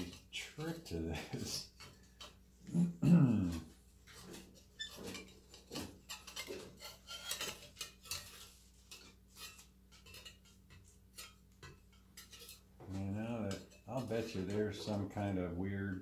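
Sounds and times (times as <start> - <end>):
fan blades clinking on wire guard: 4.0 - 15.4.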